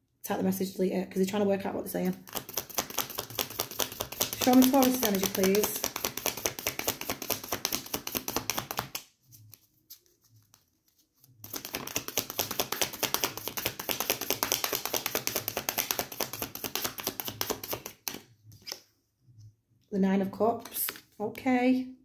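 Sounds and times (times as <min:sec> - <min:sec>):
cards being shuffled: 0:02.1 - 0:18.9, 0:20.6 - 0:21.2.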